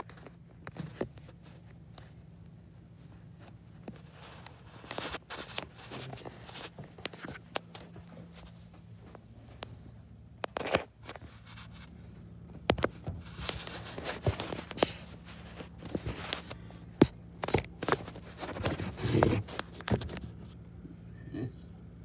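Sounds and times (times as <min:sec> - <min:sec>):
faint low hum: 0:00.0 - 0:22.0
phone being handled: 0:03.3 - 0:09.7, 0:10.4 - 0:20.6
scraping rustle: 0:12.8 - 0:16.7, 0:17.4 - 0:20.6.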